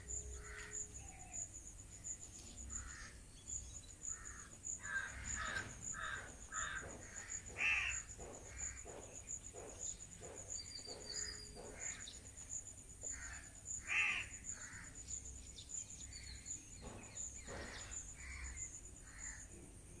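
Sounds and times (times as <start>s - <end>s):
high insect trill: 0.0s - 20.0s
birds harsh calls: 2.6s - 12.3s, 13.1s - 15.4s, 16.0s - 19.4s.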